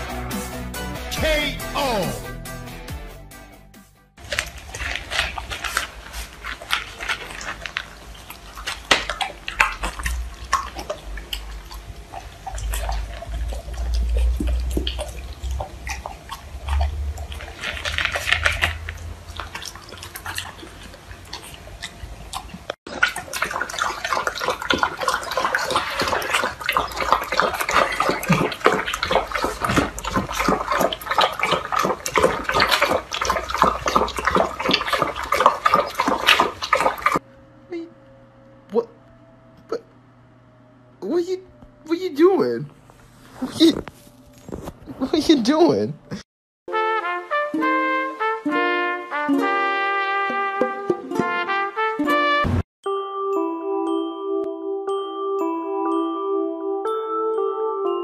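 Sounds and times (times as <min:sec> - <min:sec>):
dog crunching dry kibble: 0:04.2 - 0:37.2
dogs lapping liquid: 0:04.2 - 0:37.2.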